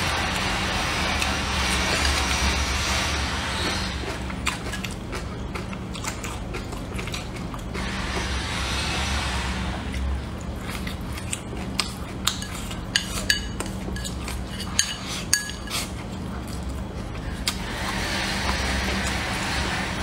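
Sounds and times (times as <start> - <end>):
steady low hum: 0.0 - 20.0
chewing: 3.6 - 8.0, 9.9 - 19.3
chopsticks clicking on a bowl: 11.3 - 14.2.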